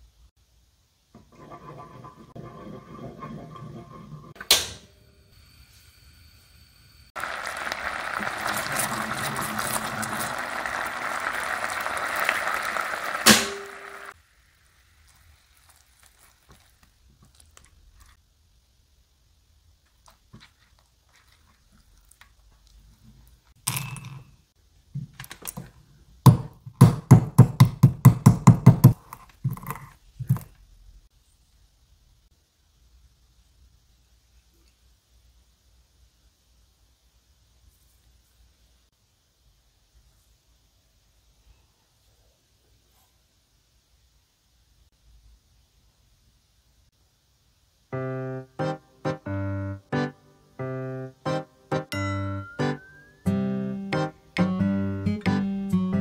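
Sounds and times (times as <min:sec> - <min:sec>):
metal utensil stirring: 0:01.2 - 0:04.4
sauce bubbling and sizzling: 0:07.1 - 0:18.2
pestle pounding nuts in bowl: 0:26.3 - 0:29.7.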